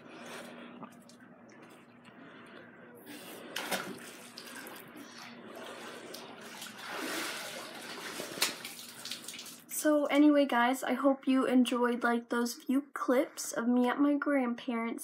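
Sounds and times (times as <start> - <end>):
water splashing in pool: 3.2 - 9.7.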